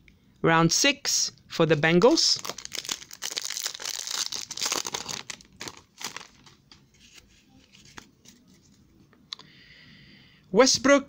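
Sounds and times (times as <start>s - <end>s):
foil wrapper tearing and crinkling: 2.4s - 6.6s.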